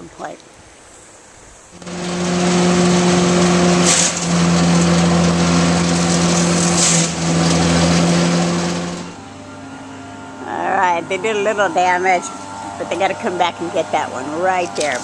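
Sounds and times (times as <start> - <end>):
branches crackling in chipper: 1.8 - 15.0
wood chipper engine running: 1.8 - 15.0.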